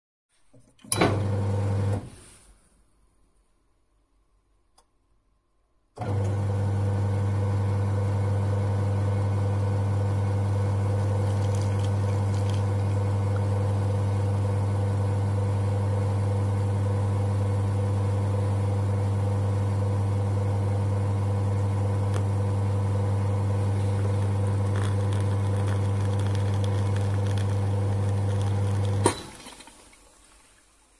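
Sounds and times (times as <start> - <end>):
espresso machine pump humming: 6.0 - 29.2.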